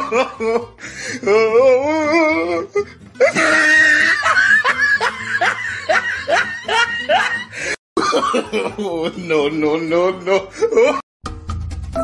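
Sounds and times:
person laughing hard: 0.0 - 11.1.

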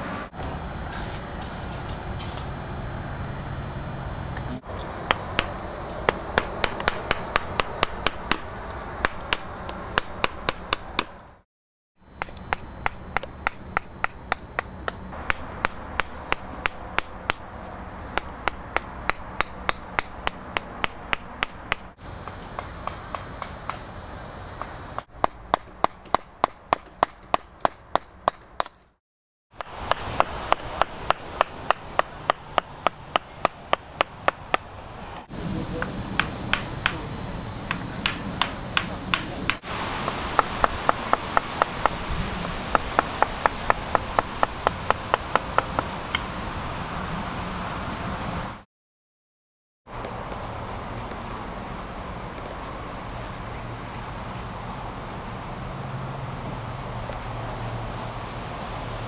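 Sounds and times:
mallet striking wood chisel: 6.1 - 11.1, 12.2 - 17.4, 18.2 - 21.9, 36.2 - 37.0, 37.7 - 39.6.

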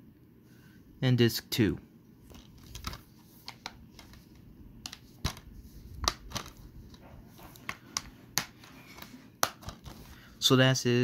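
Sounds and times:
plastic case clicks and taps: 9.4 - 9.8.

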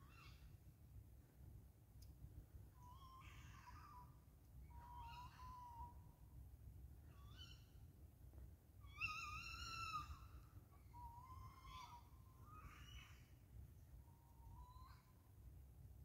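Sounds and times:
wavering animal calls: 4.7 - 6.0, 8.9 - 13.3.

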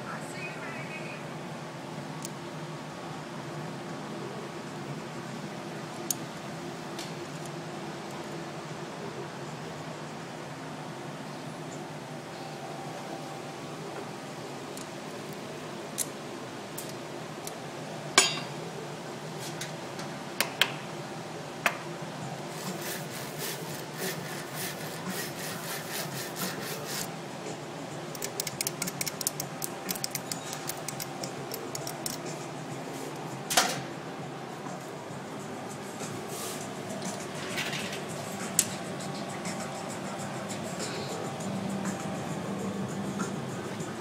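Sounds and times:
steady low hum: 0.0 - 44.0
tools clinking against glass: 18.2 - 18.6, 28.2 - 32.3.

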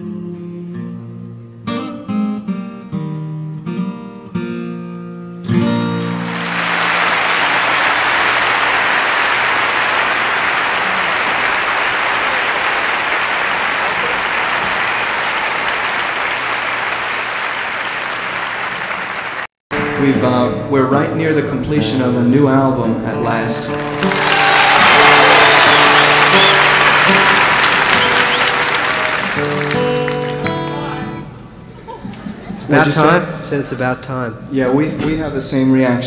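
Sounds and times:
acoustic guitar strumming: 0.0 - 8.7, 19.7 - 31.5
audience applauding: 5.8 - 19.6, 23.7 - 31.2.

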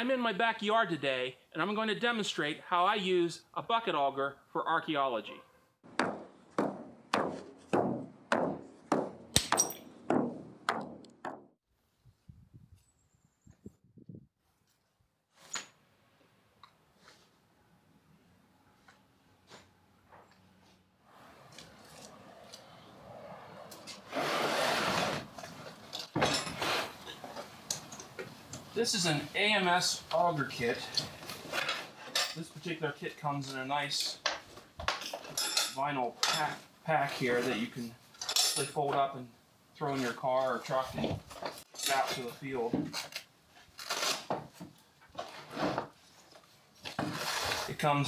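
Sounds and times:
pack scraping across bed liner: 24.0 - 25.3, 47.0 - 47.8.

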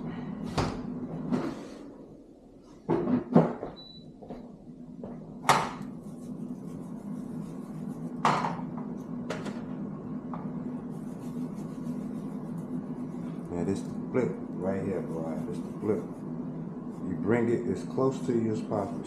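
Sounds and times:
steady low hum: 3.8 - 19.0.

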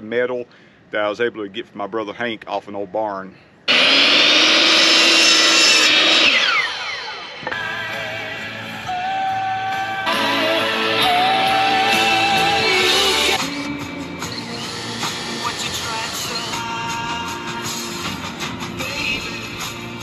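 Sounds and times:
miter saw motor winding down: 3.7 - 9.2, 10.0 - 16.8
background music: 7.4 - 20.0.

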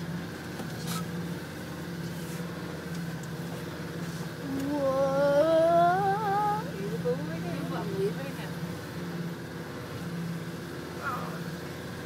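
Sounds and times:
car engine running: 0.0 - 12.0
person humming: 4.4 - 7.4.

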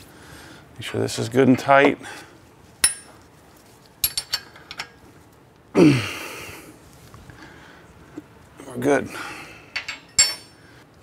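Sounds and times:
metal tools clinking: 4.0 - 5.0, 9.7 - 10.6.

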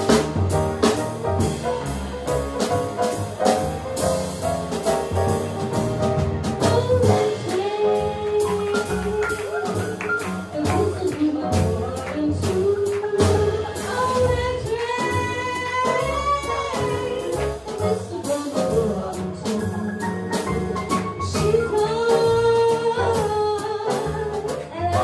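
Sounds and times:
drum kit with cymbals: 0.0 - 25.0
piano: 0.0 - 25.0
upright bass: 0.0 - 25.0
woman singing: 6.6 - 25.0.

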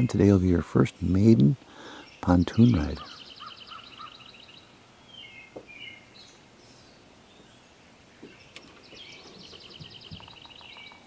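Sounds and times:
small birds chirping: 0.0 - 11.0
rapid high bird trill: 2.0 - 4.7, 8.3 - 11.0.

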